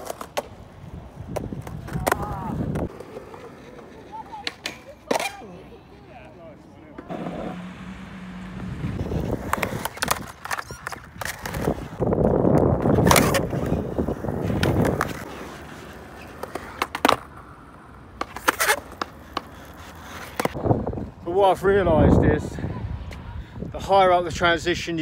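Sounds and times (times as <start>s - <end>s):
skateboard wheels rolling on concrete: 0.0s - 25.0s
skateboard trucks clacking on coping: 1.3s - 6.0s, 6.9s - 17.4s.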